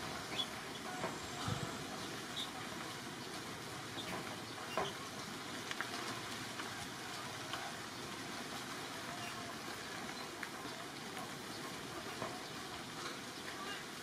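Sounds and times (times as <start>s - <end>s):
steady background hiss: 0.0s - 10.9s.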